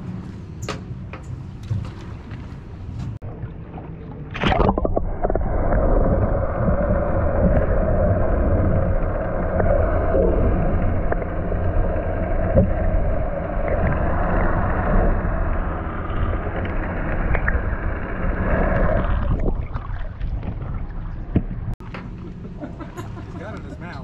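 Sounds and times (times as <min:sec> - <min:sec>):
low boat hum: 0:00.0 - 0:24.0
muffled underwater rushing: 0:01.8 - 0:21.8.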